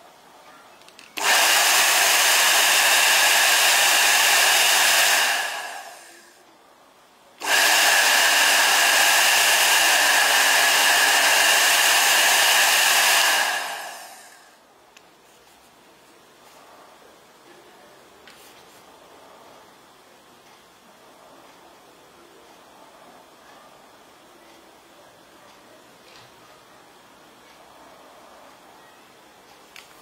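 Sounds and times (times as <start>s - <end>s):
hair dryer blowing with whine: 1.2s - 6.4s, 7.4s - 14.6s.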